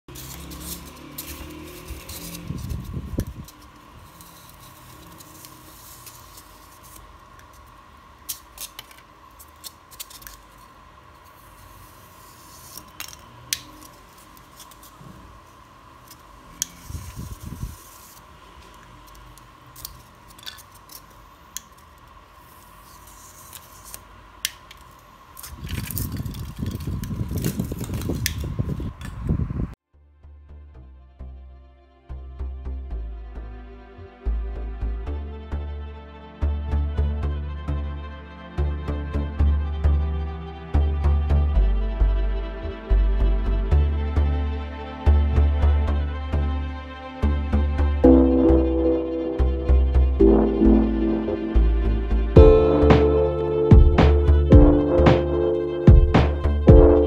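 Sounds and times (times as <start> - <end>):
foam rustling and rubbing: 0.1 - 7.3, 16.7 - 19.1.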